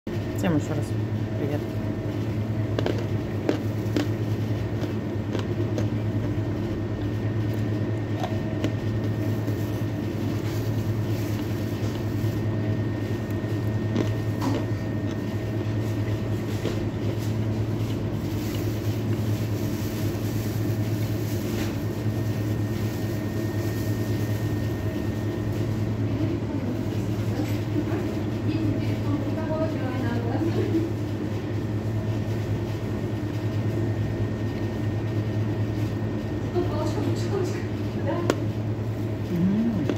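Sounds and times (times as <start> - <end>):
ventilation fan humming: 0.1 - 39.9
crunchy chewing: 2.0 - 23.3, 39.0 - 39.9.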